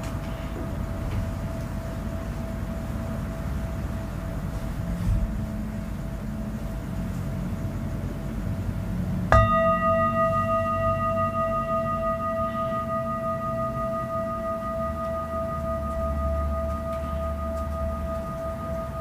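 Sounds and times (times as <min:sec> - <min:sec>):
singing bowl ringing: 0:09.3 - 0:19.0.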